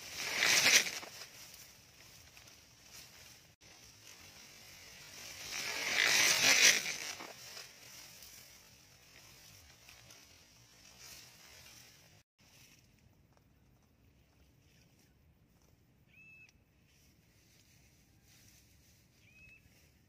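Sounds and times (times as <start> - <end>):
net swishing through air: 0.0 - 1.4, 5.1 - 7.7.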